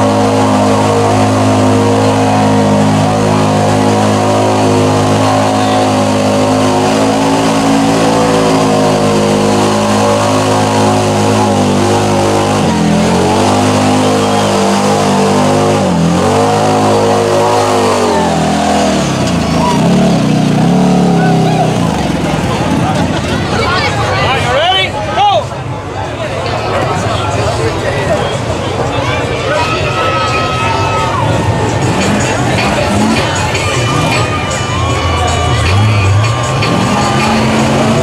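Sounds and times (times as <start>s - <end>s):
utv engine revving hard: 0.0s - 23.1s, 35.6s - 38.0s.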